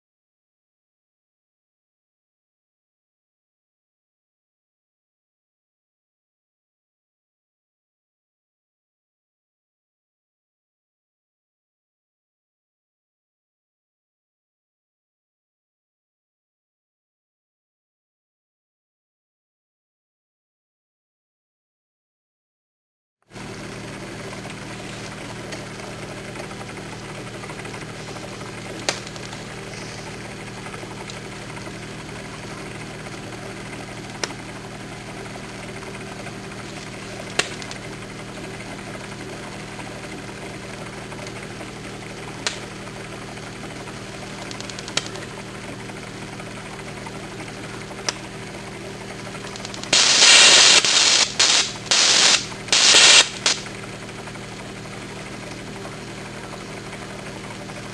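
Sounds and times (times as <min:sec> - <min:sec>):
torch hum with faint hiss: 0:23.4 - 0:57.9
crackling popping torch bursts: 0:49.5 - 0:53.7
sharp clicks: 0:49.5 - 0:53.7.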